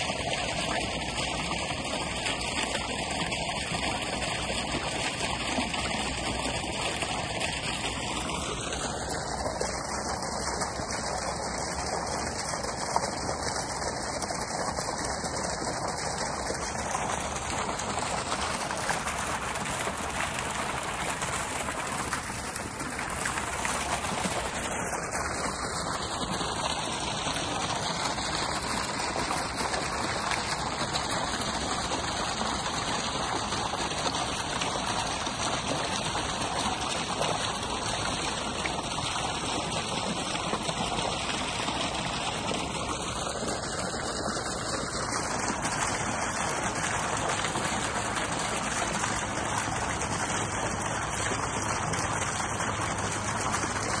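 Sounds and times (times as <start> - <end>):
water fountain splashing: 0.0 - 54.0.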